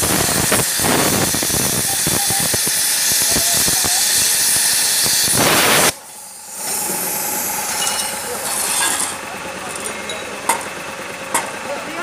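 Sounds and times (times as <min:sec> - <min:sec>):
plasma cutter hissing and crackling: 0:00.0 - 0:09.2.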